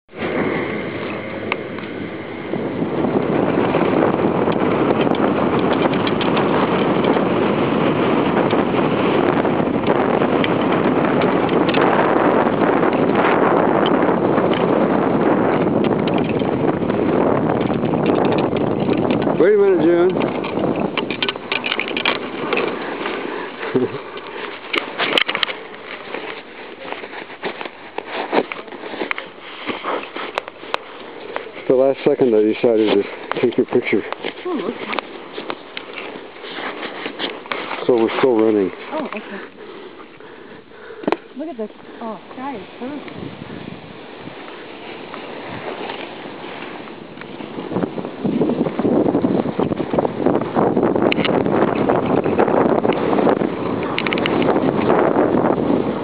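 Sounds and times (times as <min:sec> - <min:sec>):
wind on microphone: 0:00.1 - 0:56.0
crackles and knocks: 0:03.1 - 0:40.4, 0:44.3 - 0:55.4
skis sliding over snow: 0:18.5 - 0:40.1, 0:41.2 - 0:56.0.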